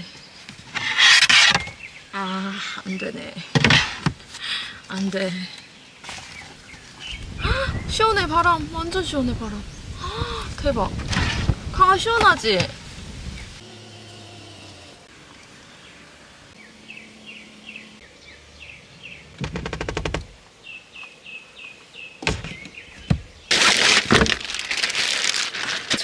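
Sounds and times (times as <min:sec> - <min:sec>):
birds chirping: 0:00.0 - 0:25.4
plastic bag crinkling: 0:23.5 - 0:26.0.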